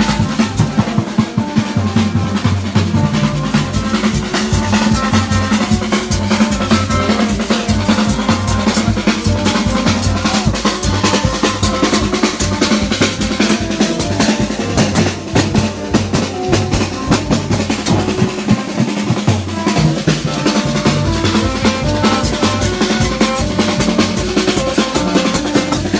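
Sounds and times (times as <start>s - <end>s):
brass horns: 0.0s - 25.9s
hand drums and marching drums: 0.0s - 25.9s.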